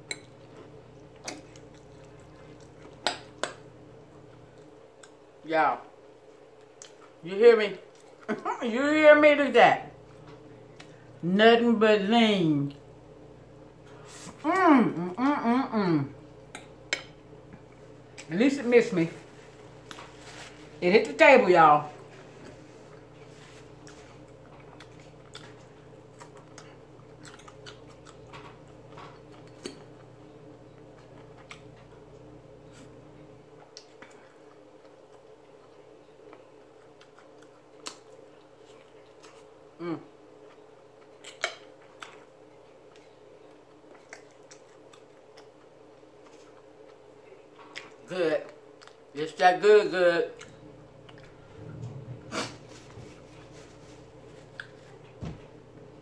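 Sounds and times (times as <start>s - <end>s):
person chewing meat: 0.0s - 5.4s, 6.2s - 7.2s, 22.0s - 48.0s, 48.6s - 49.1s, 50.4s - 51.8s, 52.4s - 55.2s
faint steady hum: 0.0s - 56.0s.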